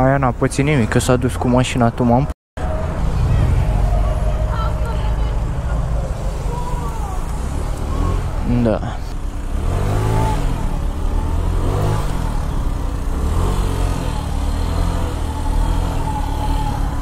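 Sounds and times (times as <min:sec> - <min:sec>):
motor scooter engine revving: 0:09.2 - 0:17.0.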